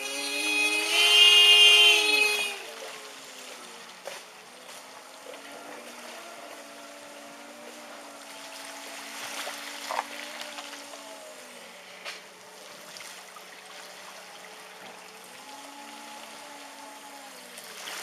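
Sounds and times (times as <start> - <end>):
car horn two-note tone: 0.0 - 2.7
flowing water rushing: 0.0 - 18.0.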